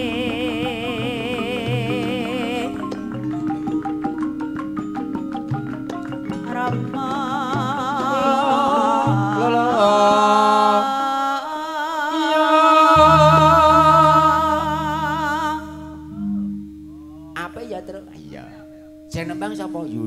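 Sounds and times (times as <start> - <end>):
woman singing with vibrato: 0.0 - 3.6, 6.3 - 18.2
gamelan accompaniment: 0.0 - 11.0, 12.8 - 20.0
deep sustained low note: 13.0 - 20.0.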